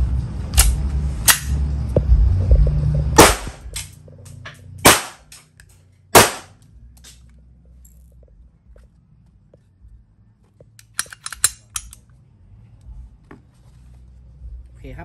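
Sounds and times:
low rumble: 0.0s - 5.6s
blank pistol shots: 3.2s - 3.7s, 4.8s - 5.3s, 6.2s - 6.6s.

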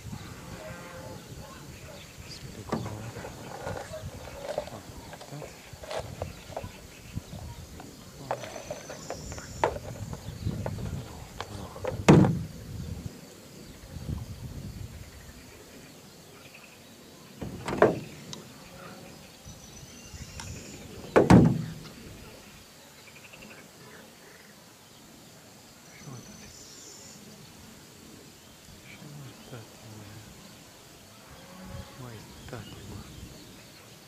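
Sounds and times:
low handling noise: 2.2s - 13.0s, 17.4s - 18.5s, 20.3s - 22.3s
sharp knocks: 11.8s - 12.5s, 17.4s - 18.2s, 21.0s - 21.9s.

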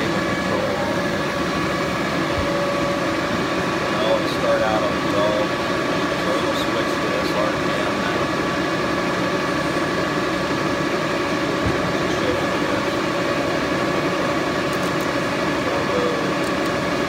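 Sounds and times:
lathe mechanical hum: 0.0s - 17.0s.

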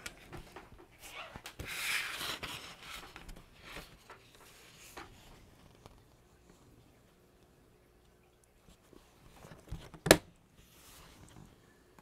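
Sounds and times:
paper rustling scrape: 1.0s - 5.0s.

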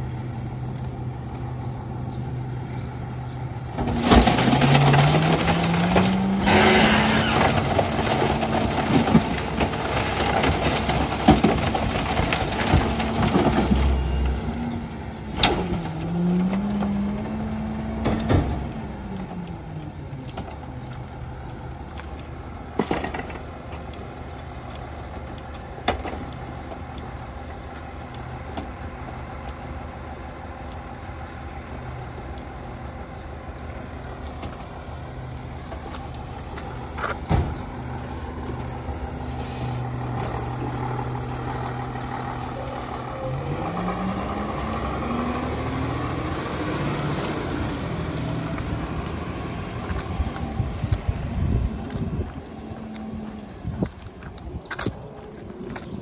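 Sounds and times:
garbage truck engine running: 0.0s - 56.0s
cracks and bangs from hopper: 3.8s - 14.4s.

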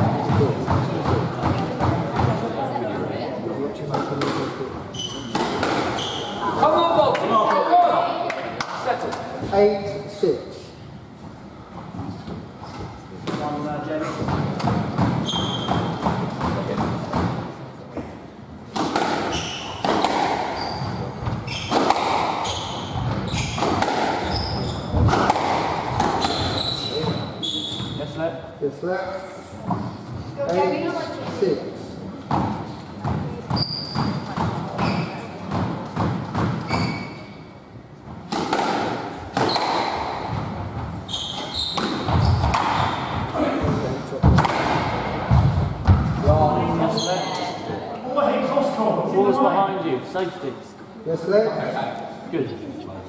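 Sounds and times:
shoes squeaking on wooden floor: 4.9s - 6.6s, 15.2s - 16.0s, 19.2s - 21.8s, 22.4s - 25.2s, 26.0s - 28.1s, 33.3s - 35.3s, 36.6s - 37.4s, 39.4s - 44.0s, 46.8s - 47.7s
squash ball struck by rackets: 5.3s - 6.0s, 14.2s - 17.4s, 18.7s - 20.6s, 21.6s - 22.8s, 23.4s - 26.6s, 34.0s - 36.7s, 38.3s - 40.6s, 41.3s - 46.3s
ball slapping off walls: 25.0s - 26.4s, 41.8s - 43.0s, 44.2s - 46.2s.

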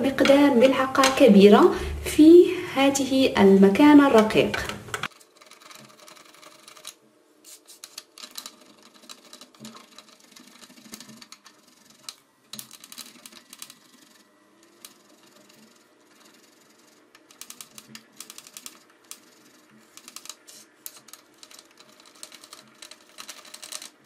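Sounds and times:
candle grated on metal grater: 5.1s - 24.0s.

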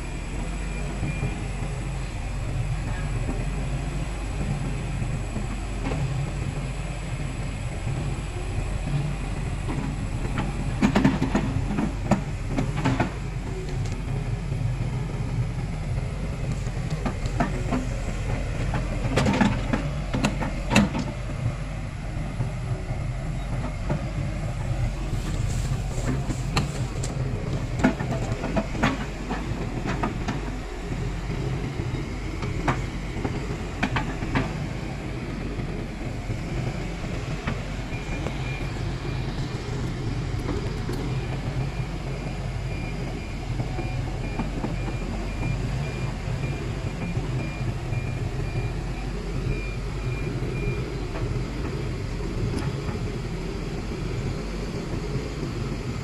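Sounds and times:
diesel engine running: 0.0s - 56.0s
machine knocks and clanks: 8.9s - 14.0s, 16.4s - 21.4s, 23.6s - 41.7s.

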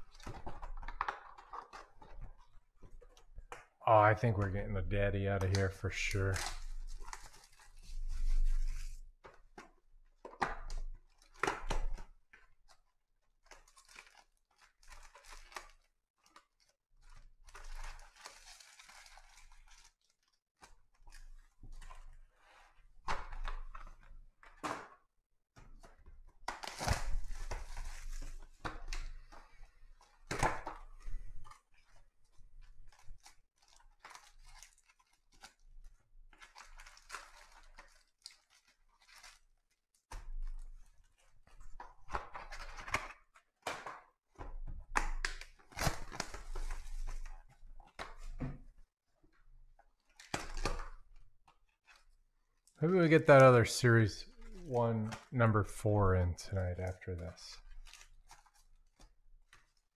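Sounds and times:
card packs tearing open: 5.4s - 7.7s, 17.4s - 20.2s, 26.5s - 29.2s, 32.8s - 35.6s, 36.4s - 39.5s, 50.1s - 51.0s
wrappers crinkling: 13.5s - 21.4s, 31.5s - 39.8s.

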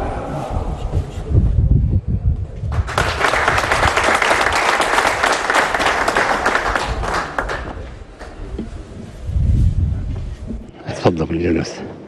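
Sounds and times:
crowd applauding: 2.7s - 8.4s.

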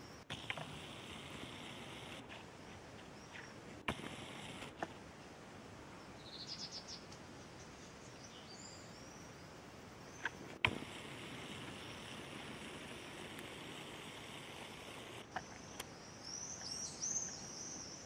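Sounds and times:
sharp clicks: 0.3s - 2.4s, 3.4s - 5.0s, 10.2s - 15.9s
high bird chirps: 6.1s - 7.2s.

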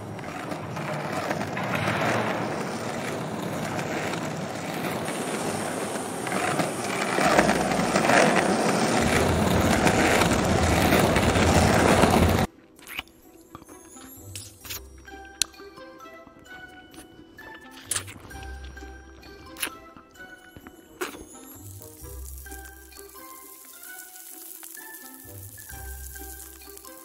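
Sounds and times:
plastic wheels rolling on a board: 0.0s - 12.5s, 22.2s - 27.0s.

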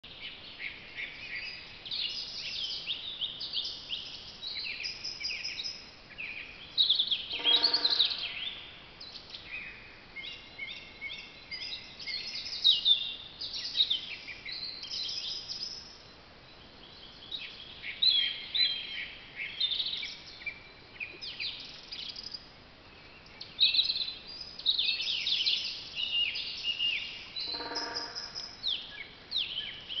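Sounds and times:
songbirds chirping and trilling: 0.0s - 30.0s
low bird call: 7.3s - 8.6s, 27.4s - 28.7s.

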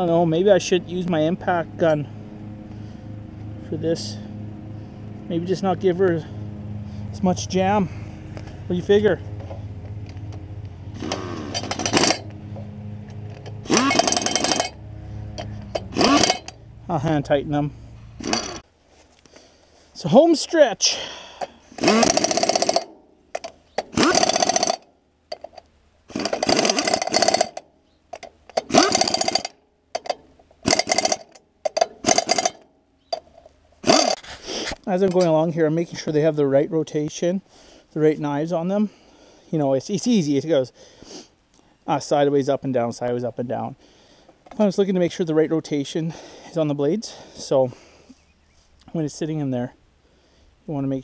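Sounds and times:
pneumatic impact gun rattling: 10.9s - 12.3s, 13.2s - 16.6s, 18.2s - 18.7s, 21.6s - 34.7s.

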